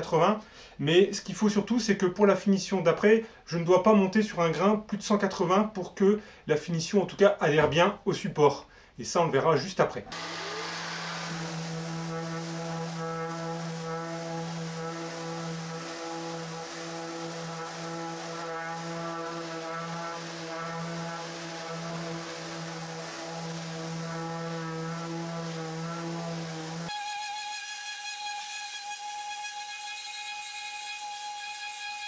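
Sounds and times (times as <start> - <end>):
orbital sander on wood: 10.1 - 27.0.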